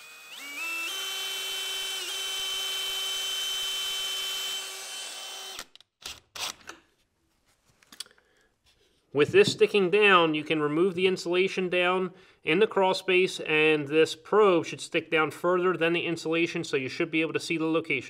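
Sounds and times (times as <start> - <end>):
cordless drill running: 0.0 - 6.8.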